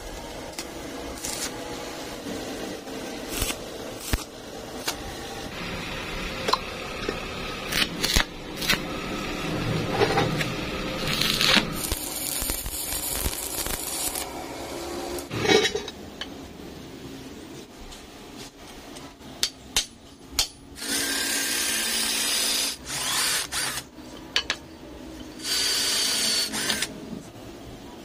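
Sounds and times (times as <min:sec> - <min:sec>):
welding arc crackling: 0:00.0 - 0:15.3.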